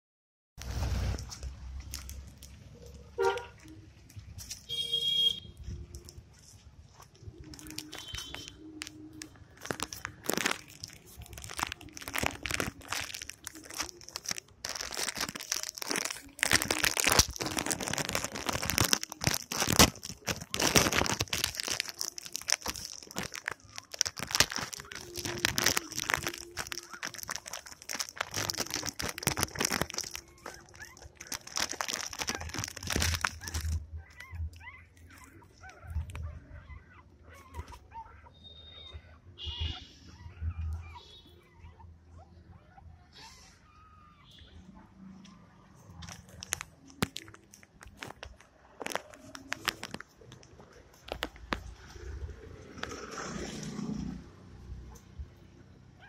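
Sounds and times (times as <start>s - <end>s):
plastic wrapper crinkling: 0.6s - 36.4s, 45.7s - 54.1s
crunches: 5.6s - 38.0s.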